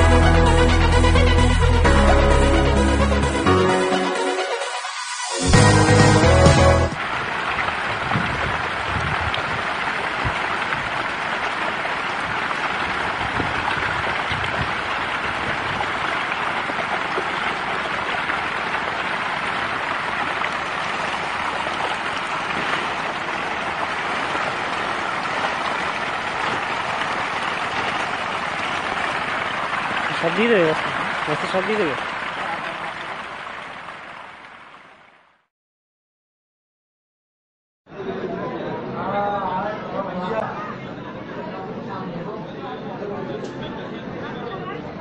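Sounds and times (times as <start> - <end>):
fish splashing in shallow water: 7.2 - 35.1.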